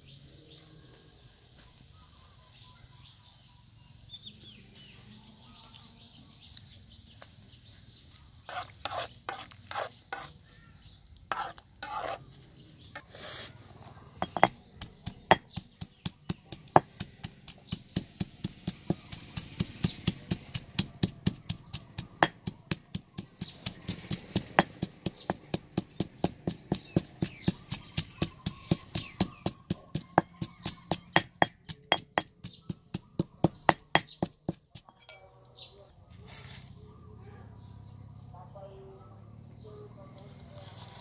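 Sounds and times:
stone pestle pounding in mortar: 14.2s - 35.1s.

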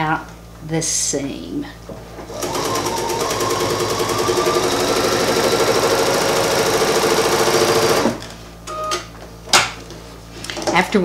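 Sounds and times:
sewing machine stitching: 2.3s - 8.2s.

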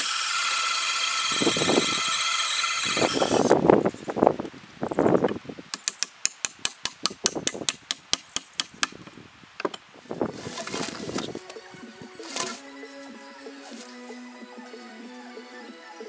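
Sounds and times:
hammer tapping log wall: 5.7s - 9.0s.

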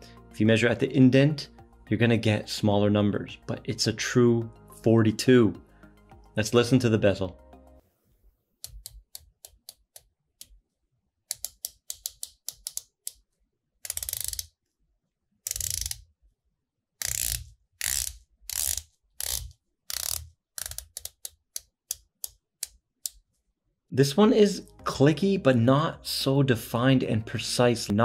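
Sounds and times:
watch bezel ratcheting clicks: 11.3s - 13.2s, 13.8s - 14.5s, 15.5s - 16.0s, 17.0s - 23.2s.

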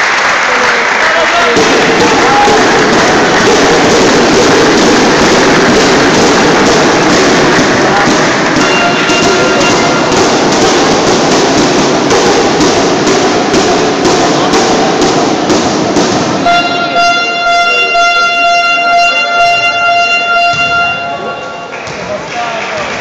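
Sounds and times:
crowd noise with steady beat: 0.0s - 23.0s
fan horn long note: 7.5s - 10.6s, 16.4s - 21.7s.

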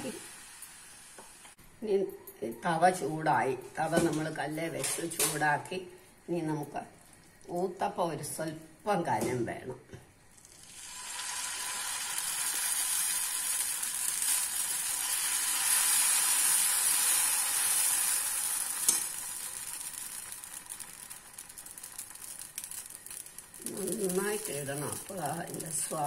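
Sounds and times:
batter sizzling on griddle: 0.0s - 1.6s, 10.3s - 26.0s.

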